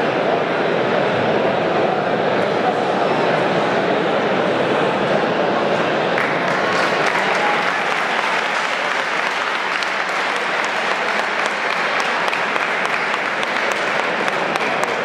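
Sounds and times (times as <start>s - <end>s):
large crowd applauding: 6.2s - 15.0s.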